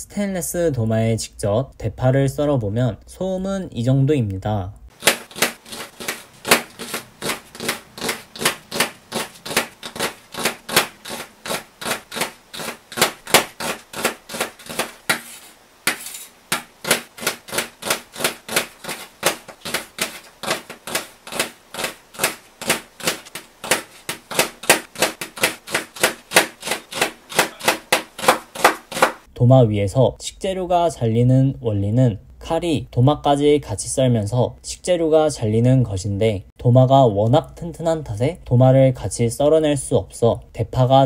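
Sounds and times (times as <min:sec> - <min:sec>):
knife chopping on steel board: 0:04.9 - 0:29.3.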